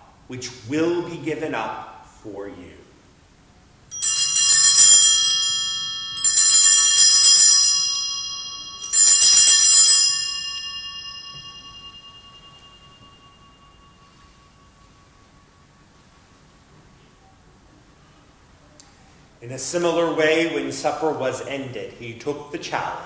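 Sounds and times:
altar bells jangling: 0:03.9 - 0:16.4.

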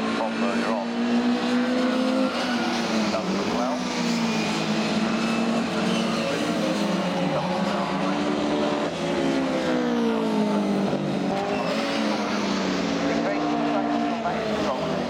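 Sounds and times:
racing car engines running hard: 0:00.0 - 0:15.0.

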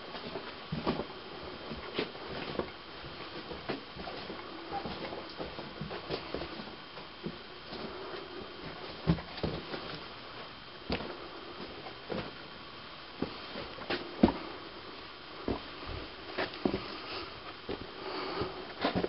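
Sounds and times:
steady hiss: 0:00.0 - 0:19.0
knocks and scuffs: 0:13.2 - 0:14.5.

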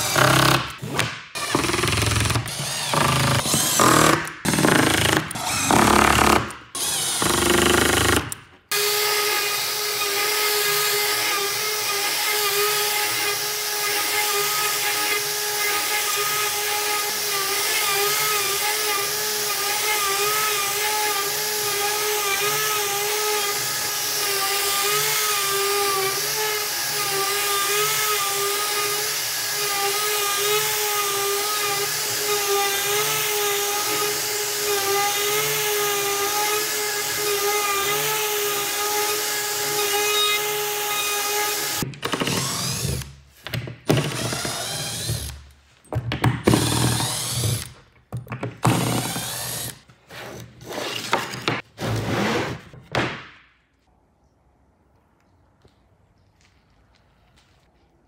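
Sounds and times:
router whining while cutting wood: 0:01.4 - 0:43.1.

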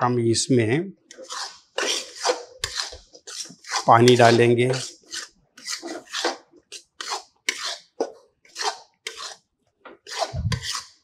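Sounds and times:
metal spatula scraping metal pan: 0:01.1 - 0:11.0.

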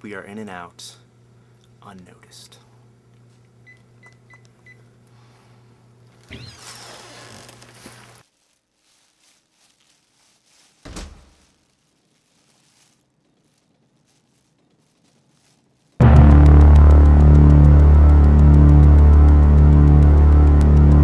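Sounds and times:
scraping and rustling: 0:06.2 - 0:16.0
steady hum: 0:16.0 - 0:21.0.

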